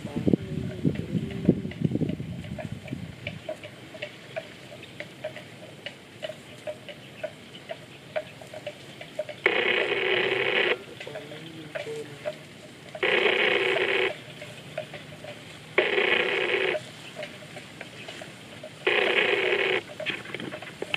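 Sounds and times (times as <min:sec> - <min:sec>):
phone ringing: 0:09.3 - 0:20.9.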